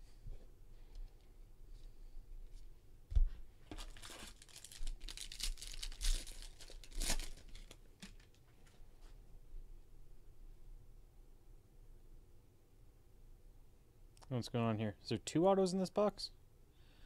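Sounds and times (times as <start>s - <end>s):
foil wrapper tearing and crinkling: 3.7s - 8.4s.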